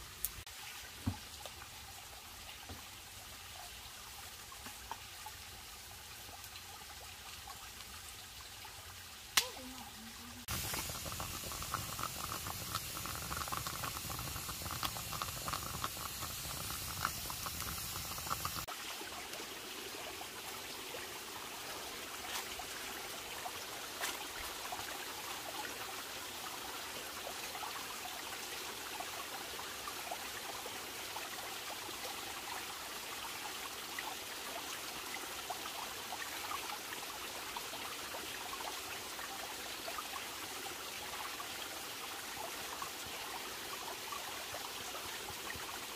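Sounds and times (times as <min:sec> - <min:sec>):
campfire crackling: 0:09.4 - 0:18.7
liquid boiling: 0:09.4 - 0:45.9
stream water rushing: 0:17.0 - 0:30.4.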